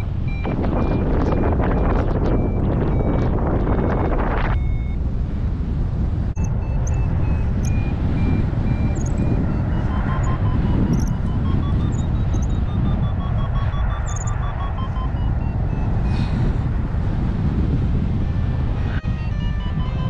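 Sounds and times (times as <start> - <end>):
variometer beeping short tones: 0.0 - 5.0, 6.4 - 16.2
wind buffeting microphone: 0.0 - 20.0.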